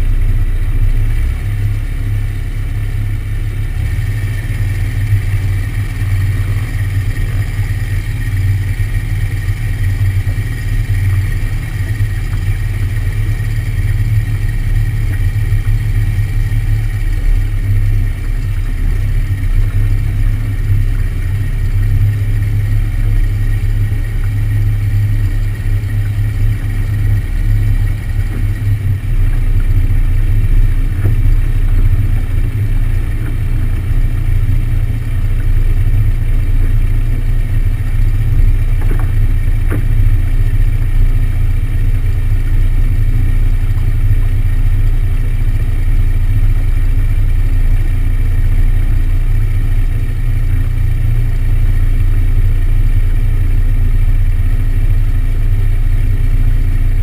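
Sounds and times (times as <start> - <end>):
airplane engine and propeller drone: 0.0 - 57.0.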